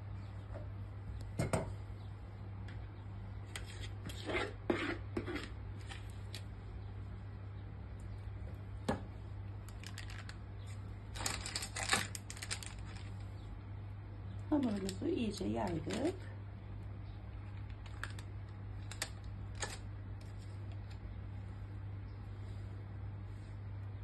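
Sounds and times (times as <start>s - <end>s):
steady low hum: 0.0s - 24.0s
spatula scraping bowl: 3.5s - 6.0s.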